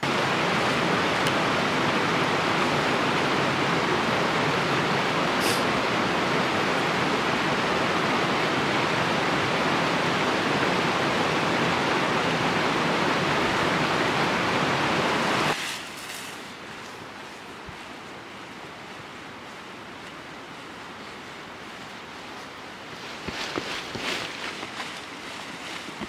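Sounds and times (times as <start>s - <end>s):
mountain river rushing: 0.0s - 26.0s.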